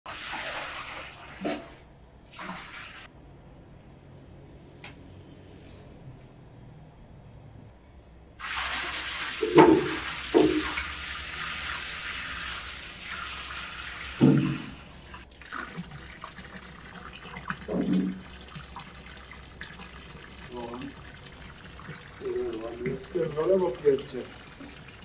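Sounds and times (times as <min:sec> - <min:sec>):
hose water running into steel bowl: 0:08.4 - 0:25.0.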